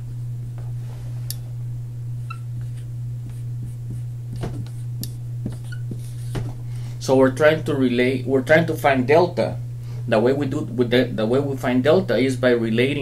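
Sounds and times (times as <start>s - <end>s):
steady low hum: 0.0s - 13.0s
marker squeaks: 2.2s - 6.4s
marker scratching on whiteboard: 2.3s - 6.5s.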